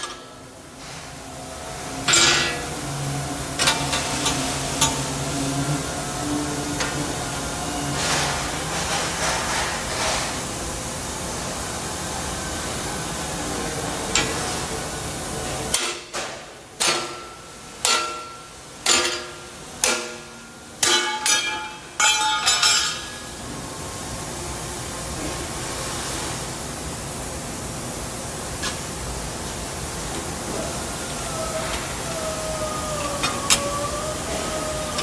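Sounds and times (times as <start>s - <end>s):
hammer striking steel: 15.7s - 23.3s.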